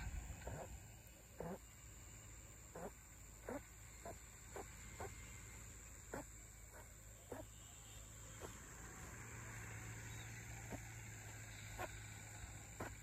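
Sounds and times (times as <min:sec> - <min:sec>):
high insect drone: 0:00.0 - 0:13.0
faint short animal calls: 0:00.4 - 0:01.8, 0:02.7 - 0:05.4, 0:06.0 - 0:08.7, 0:10.2 - 0:13.0.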